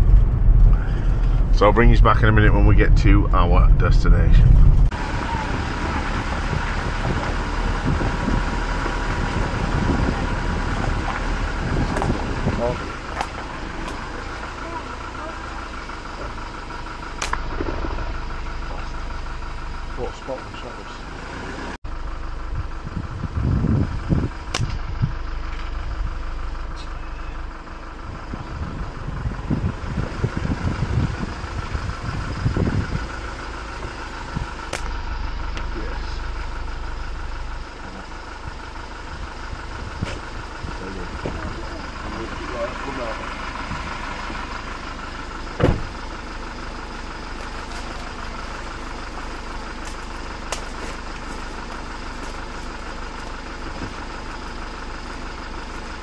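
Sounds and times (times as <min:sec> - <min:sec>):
car road and wind noise: 0:00.0 - 0:56.0
vehicle engine running: 0:00.0 - 0:56.0
sharp click: 0:17.2 - 0:17.4, 0:24.5 - 0:24.8, 0:34.7 - 0:35.0.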